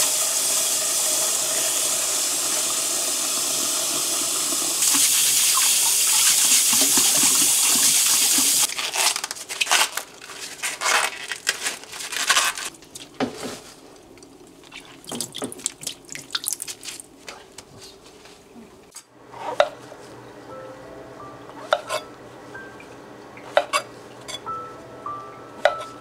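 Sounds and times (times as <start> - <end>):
water splashing in a metal bowl: 14.2 - 16.9.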